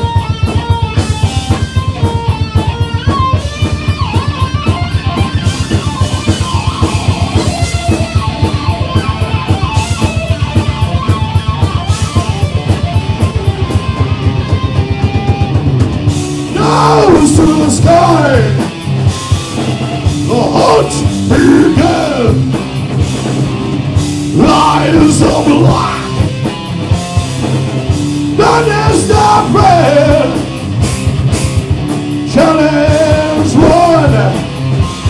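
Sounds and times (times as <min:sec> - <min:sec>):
live rock band playing: 0:00.0 - 0:35.0
person singing: 0:16.5 - 0:18.7, 0:20.2 - 0:22.4, 0:24.4 - 0:26.2, 0:28.4 - 0:30.5, 0:32.3 - 0:34.5.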